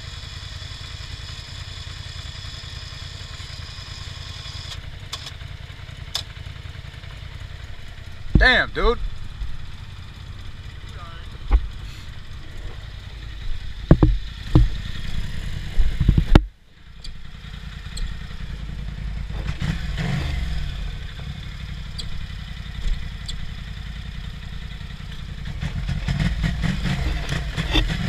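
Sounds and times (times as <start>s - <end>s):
atv engine running through mud: 0.0s - 28.0s
sharp clunks: 13.8s - 14.8s, 15.8s - 17.2s.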